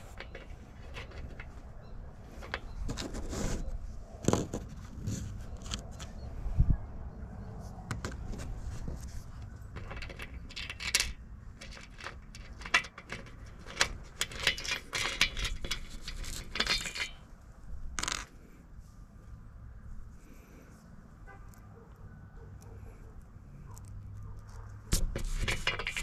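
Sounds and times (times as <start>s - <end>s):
bolt and nut clinking on metal frame: 0.0s - 3.1s, 9.7s - 17.3s, 24.9s - 26.0s.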